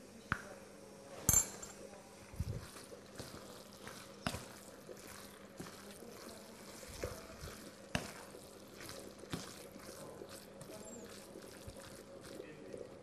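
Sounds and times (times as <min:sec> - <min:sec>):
spatula scraping frying pan: 0:02.6 - 0:12.4.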